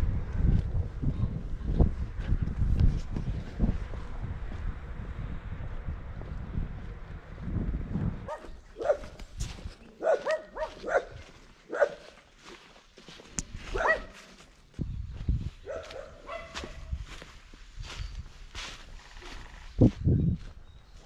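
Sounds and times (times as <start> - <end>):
wind rumble on microphone: 0.0 - 9.9, 13.4 - 21.0
dog barking: 8.3 - 9.2, 10.0 - 12.2, 13.7 - 14.2, 15.6 - 16.9.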